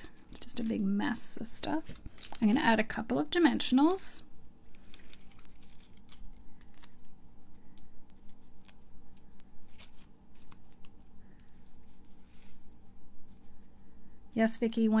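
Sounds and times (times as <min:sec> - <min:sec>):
paper and foil crackling: 0:01.9 - 0:02.9, 0:04.7 - 0:12.1.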